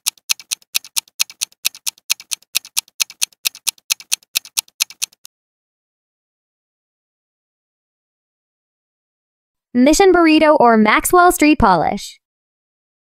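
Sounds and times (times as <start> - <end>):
clock ticking rapidly: 0.0 - 5.3.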